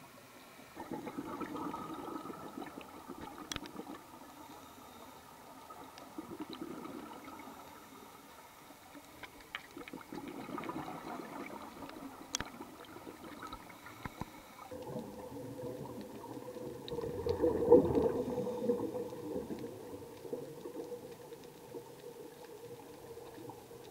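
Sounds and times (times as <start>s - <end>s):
regulator bubbling underwater: 0.8s - 4.3s, 5.6s - 7.6s, 9.7s - 23.9s
small clicks: 3.1s - 4.0s, 8.9s - 10.0s, 11.8s - 12.6s, 13.4s - 15.0s.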